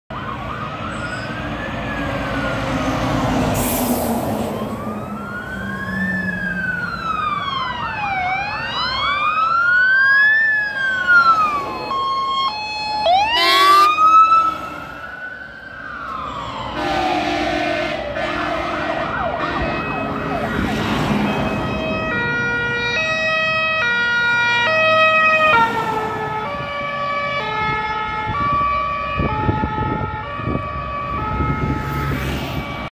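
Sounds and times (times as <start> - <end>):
wailing fire engine sirens: 0.1 - 32.9
multi-tone fire engine horns: 12.6 - 15.1, 16.3 - 32.9
loud horn blast: 13.3 - 14.8, 16.8 - 20.1.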